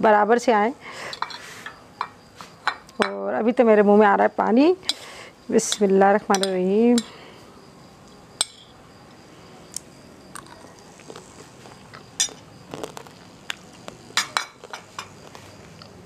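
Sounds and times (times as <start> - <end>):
metal spoon clinking on glass dish: 5.7 - 7.1, 8.4 - 8.7.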